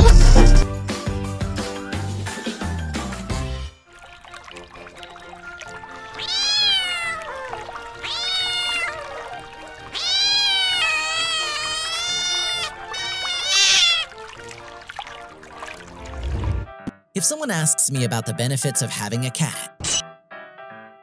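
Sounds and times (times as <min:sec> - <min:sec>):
soft background music: 0:00.0 - 0:20.9
cat meowing: 0:06.0 - 0:14.3.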